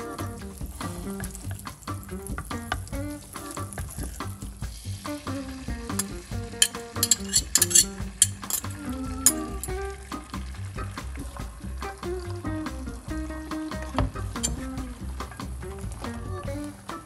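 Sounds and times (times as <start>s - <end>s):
egg sizzling in frying pan: 0.0s - 11.8s
fork scraping and tapping container: 5.9s - 9.7s, 14.4s - 14.7s.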